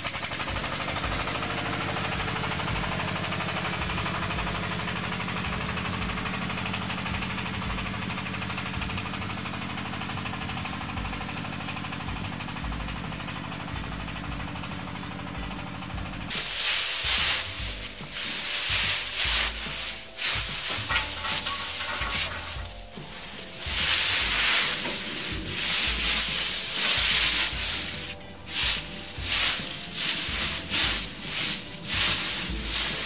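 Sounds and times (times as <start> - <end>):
dry vines crackling and rustling: 16.3 - 33.0.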